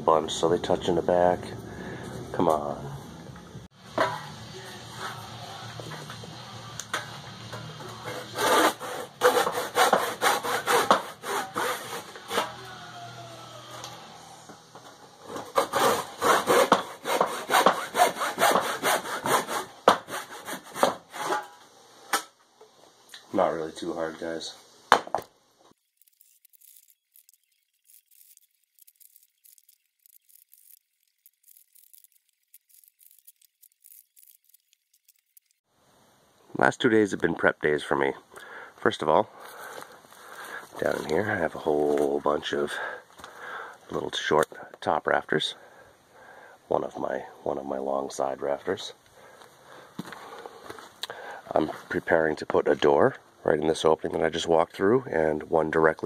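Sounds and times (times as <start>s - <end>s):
handsaw cutting wood: 8.0s - 12.6s, 15.3s - 21.4s, 31.4s - 35.5s.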